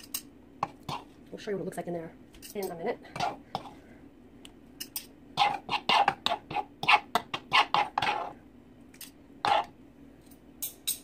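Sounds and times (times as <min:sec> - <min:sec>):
fork scraping on plastic board: 0:05.4 - 0:08.4, 0:09.4 - 0:09.7.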